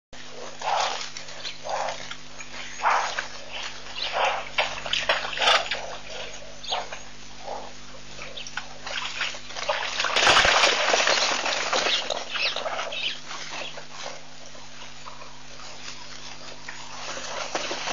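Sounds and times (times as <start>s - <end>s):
herd bolting with hooves splashing: 0.3s - 17.9s
splashing at water's edge: 8.8s - 12.9s.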